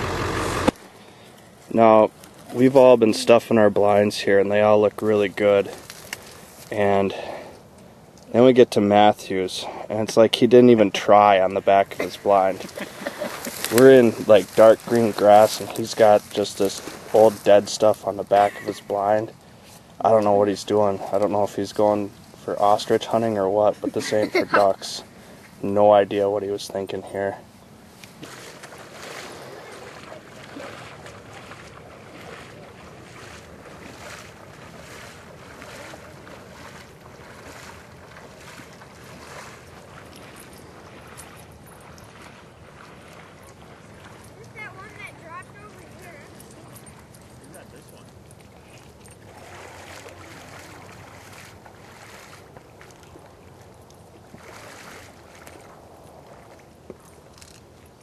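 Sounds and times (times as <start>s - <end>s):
water splashing from wading: 0.0s - 1.1s, 10.8s - 25.7s, 27.7s - 57.9s.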